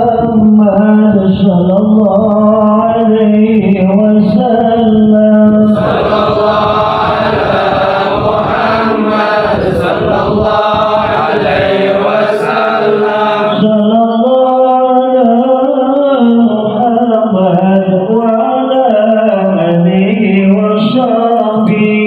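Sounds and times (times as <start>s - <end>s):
congregation chanting: 5.6s - 13.9s.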